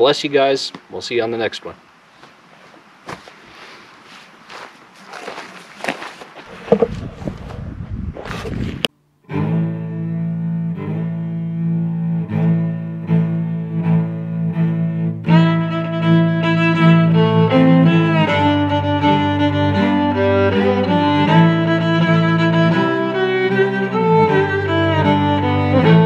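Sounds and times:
cello playing low notes: 9.3 - 26.0
higher strings melody: 9.3 - 26.0.

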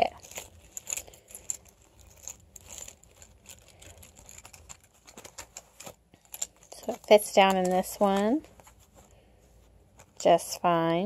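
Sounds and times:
keys clinking: 0.0 - 8.8
fabric rustling: 0.0 - 11.0.

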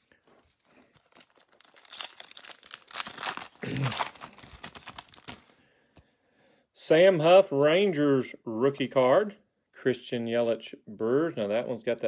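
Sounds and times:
foil wrapper tearing and crinkling: 0.8 - 5.5.

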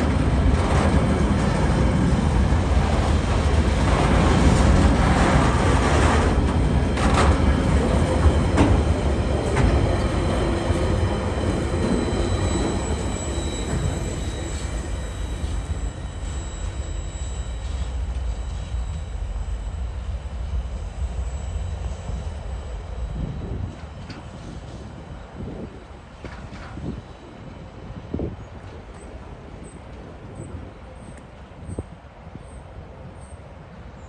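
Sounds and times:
freight train rumbling past: 0.0 - 34.0
faint high wheel squeal: 7.4 - 33.4.

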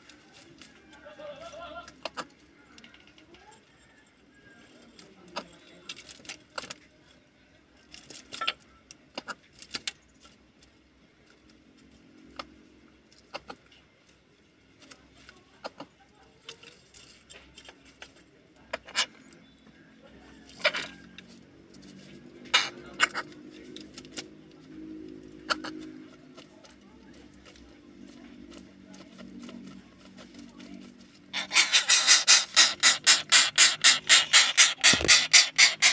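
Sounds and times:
beak tapping on wood and shells: 31.4 - 35.9.

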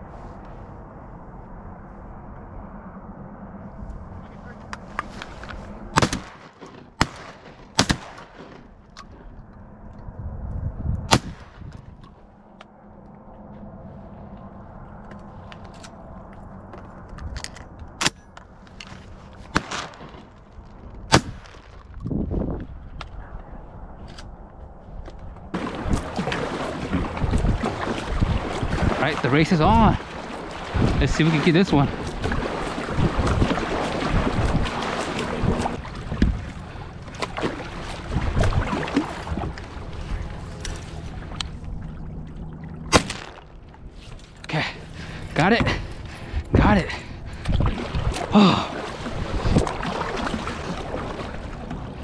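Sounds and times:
wind rumble on microphone: 0.0 - 6.4, 8.7 - 52.0
shotgun shots: 6.0 - 8.6, 11.1 - 11.6, 19.5 - 20.2, 42.9 - 43.4
water splashing against kayak hull: 25.5 - 46.4, 47.0 - 52.0.

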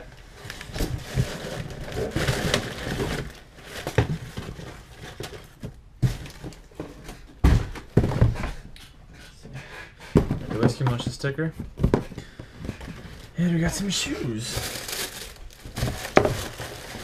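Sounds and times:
cardboard and plastic rustling: 0.0 - 8.7, 10.1 - 17.0
heavy thumps of box: 6.0 - 8.6, 10.1 - 11.0.

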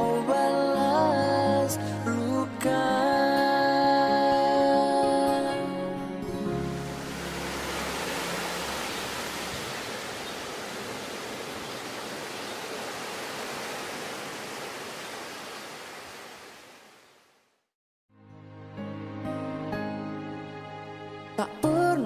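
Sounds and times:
steady rushing hiss: 6.8 - 16.4.

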